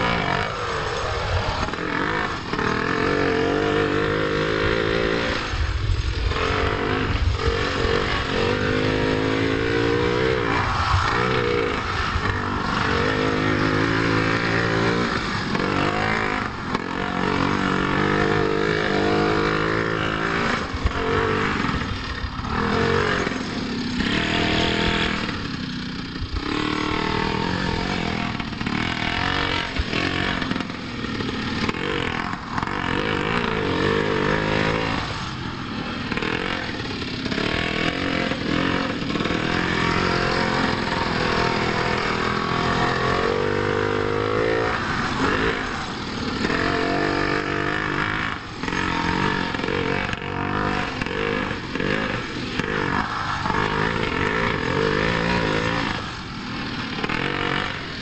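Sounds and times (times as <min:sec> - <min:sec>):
small two-stroke engine revving: 0:00.0 - 0:58.0.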